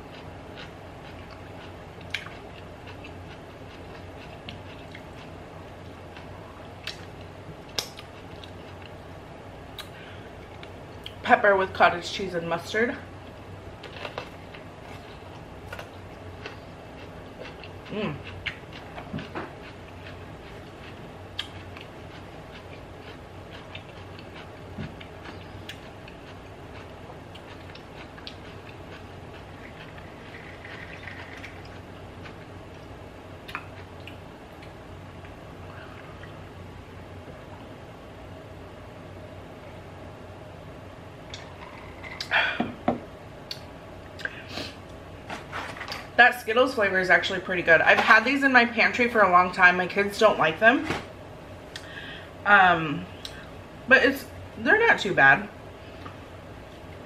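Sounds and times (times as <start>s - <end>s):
chewing crunchy pepper: 0.0s - 9.0s, 13.8s - 35.4s
steady low hum: 0.0s - 57.0s.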